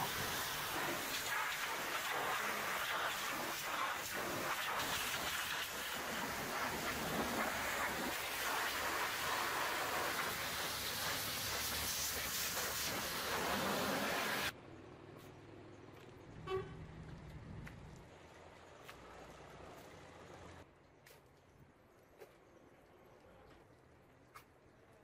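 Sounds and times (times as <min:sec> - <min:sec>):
pressure washer jet hissing: 0:00.0 - 0:14.5
short horn toot: 0:16.4 - 0:16.8.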